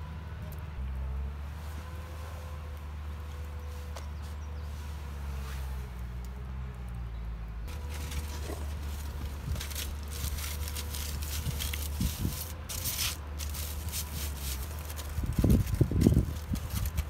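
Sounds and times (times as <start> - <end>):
fire crackling: 7.7 - 17.0
flatbread rustling: 7.7 - 17.0.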